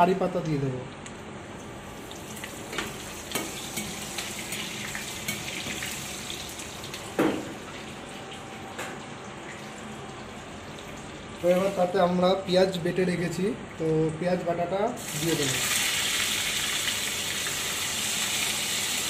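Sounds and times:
spices sizzling in hot oil: 2.0 - 7.1, 15.0 - 19.0.

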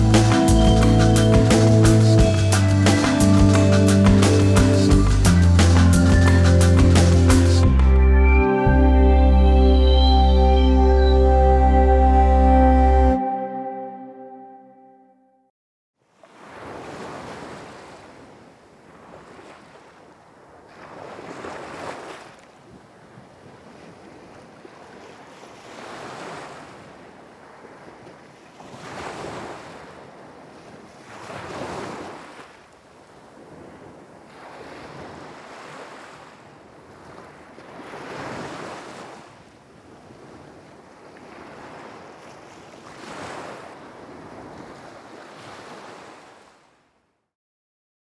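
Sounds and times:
ocean surf washing ashore: 0.0 - 7.6, 16.2 - 22.4, 23.4 - 46.7.

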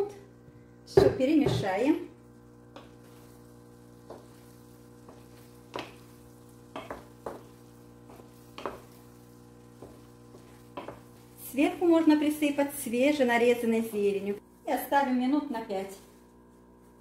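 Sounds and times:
wooden spatula scraping a pan: 1.5 - 12.0.

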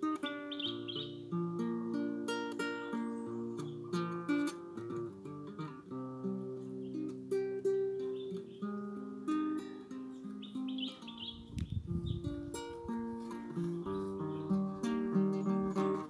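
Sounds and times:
classical guitar playing: 0.0 - 16.0.

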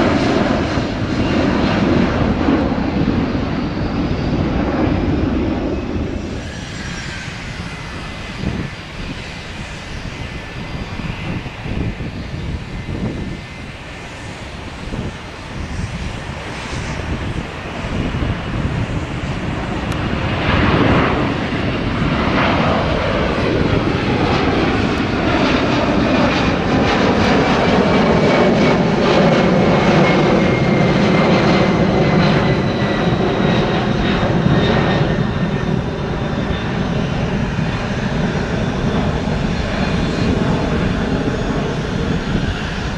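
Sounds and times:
jet airliner passing overhead: 0.0 - 42.9
jet engine whine: 0.0 - 42.9.

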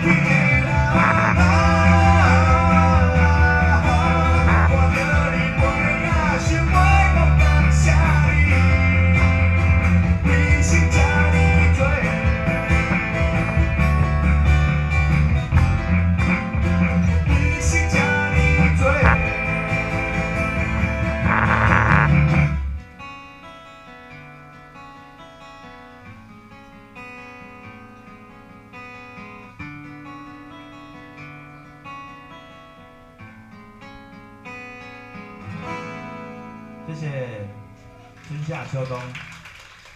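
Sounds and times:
electric bass guitar: 0.0 - 23.1
strummed acoustic guitar: 0.0 - 38.9.

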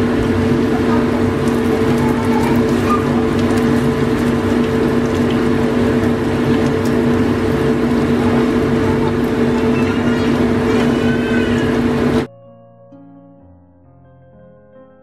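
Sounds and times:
food crackling in frying oil: 0.0 - 12.3
motor humming: 0.0 - 12.3.

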